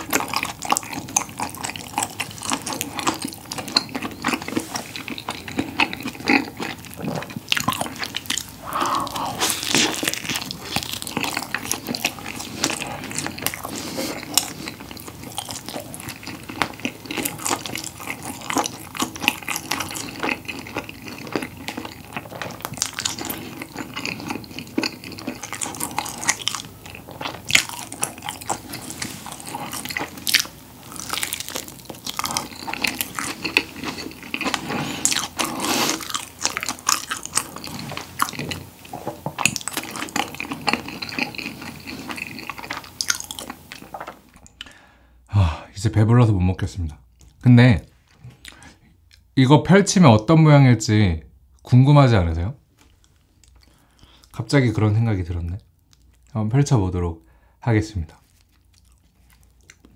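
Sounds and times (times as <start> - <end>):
chewing and biting food: 0.0 - 44.8, 55.7 - 56.3, 58.2 - 59.9.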